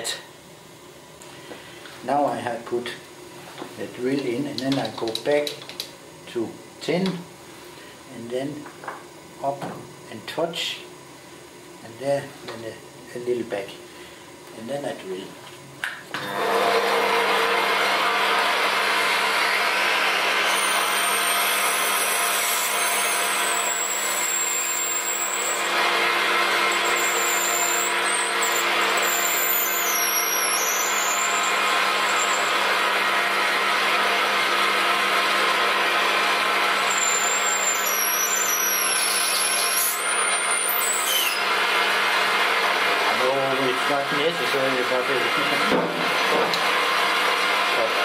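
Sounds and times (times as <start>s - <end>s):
drill cutting squeal: 20.4s - 32.8s, 36.8s - 41.6s.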